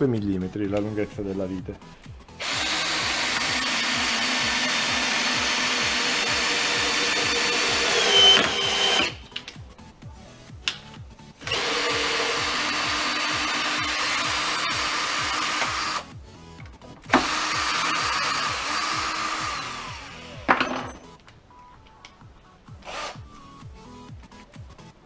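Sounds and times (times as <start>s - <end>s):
cordless drill driving screw into wood: 2.4s - 9.2s, 11.4s - 16.0s, 17.1s - 20.4s
drill squeal: 2.4s - 9.2s.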